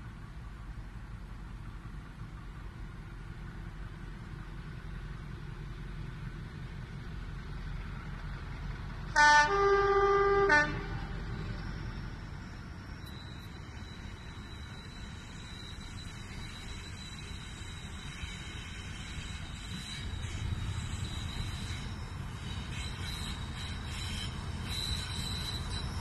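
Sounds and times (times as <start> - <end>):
locomotive two-tone air horn: 9.1 - 11.3.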